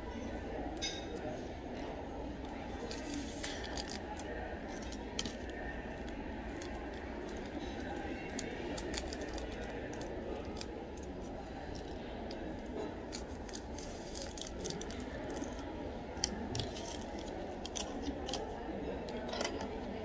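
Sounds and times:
cafe hum and murmur: 0:00.0 - 0:20.0
paper sachet tearing and crinkling: 0:02.8 - 0:11.2, 0:13.1 - 0:15.6.

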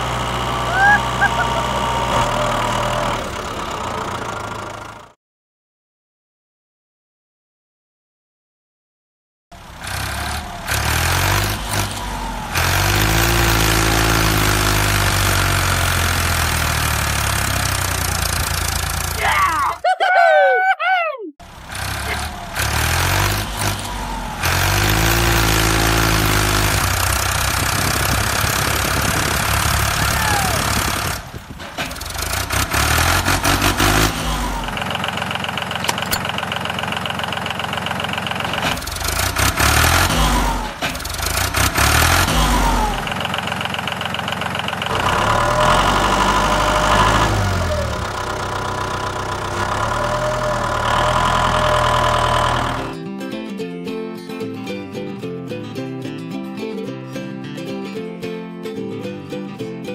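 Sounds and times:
tractor engine idling and revving: 0:00.0 - 0:05.2, 0:09.5 - 0:19.8, 0:21.4 - 0:53.0.

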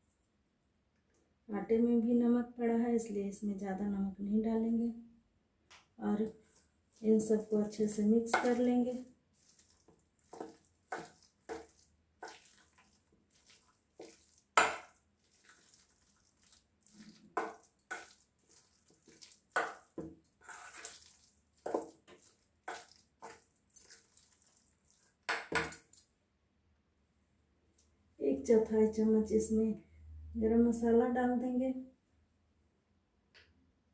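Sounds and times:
spoon scraping metal bowl: 0:07.2 - 0:25.1.

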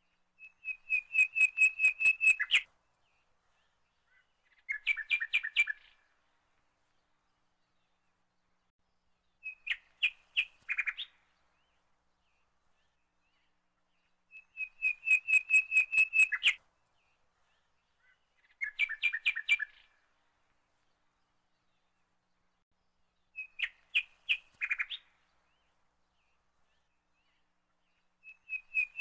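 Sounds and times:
bird chirping: 0:00.1 - 0:06.2, 0:09.2 - 0:20.2, 0:23.1 - 0:29.0.

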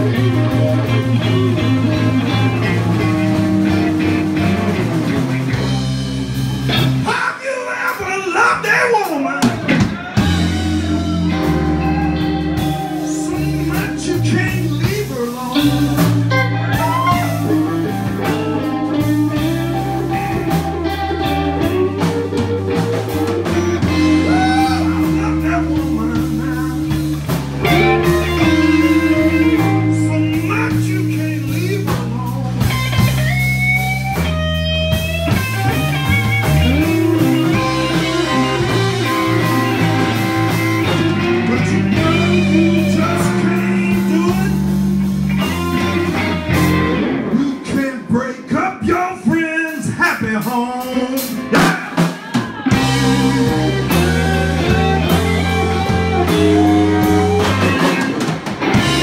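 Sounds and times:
electric guitar bending notes: 0:00.0 - 0:07.1, 0:09.4 - 0:59.0
live blues band playing: 0:00.0 - 0:59.0
person singing: 0:07.0 - 0:32.7, 0:36.8 - 0:44.8, 0:47.0 - 0:59.0.

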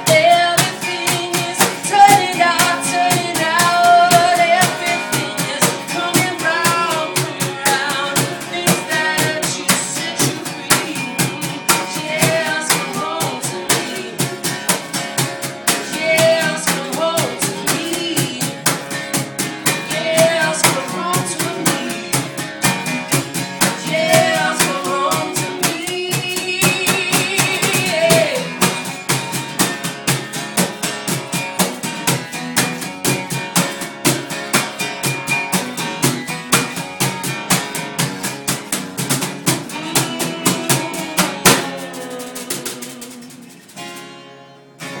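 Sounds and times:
person singing: 0:00.0 - 0:14.9, 0:15.6 - 0:19.0, 0:19.6 - 0:28.8, 0:39.4 - 0:44.0
acoustic guitar strumming: 0:00.0 - 0:45.0.

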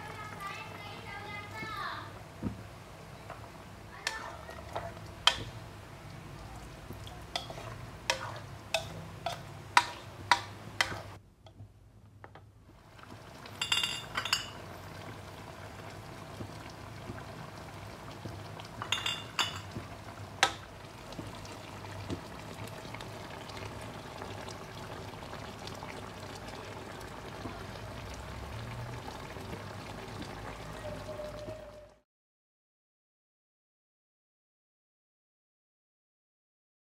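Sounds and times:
gravy simmering and bubbling: 0:00.1 - 0:32.0
metal ladle clinking against wok: 0:07.3 - 0:11.0.

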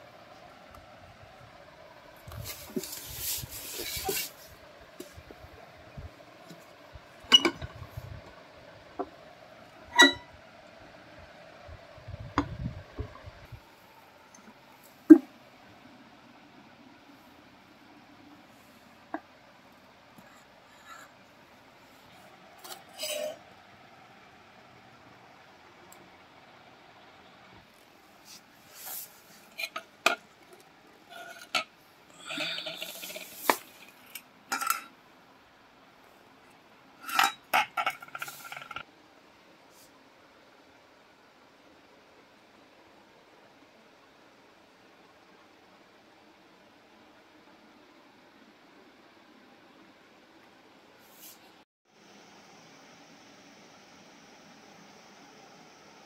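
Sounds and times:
knocks and clinks on tabletop: 0:07.3 - 0:07.8, 0:10.0 - 0:10.3.

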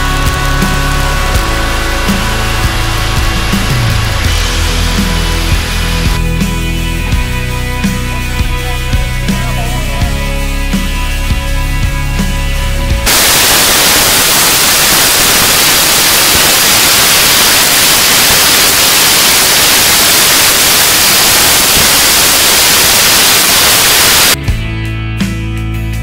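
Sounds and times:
static-like rushing noise: 0:00.0 - 0:08.2, 0:13.0 - 0:24.4
rock music with guitar: 0:00.0 - 0:26.0.

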